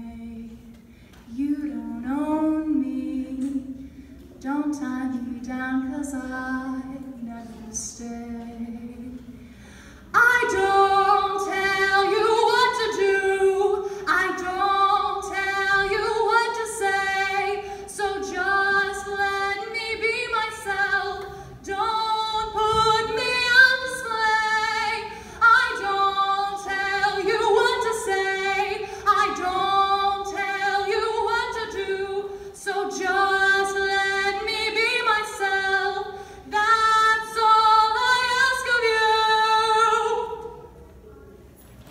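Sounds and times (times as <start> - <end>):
girl singing into microphone: 10.1 - 40.6.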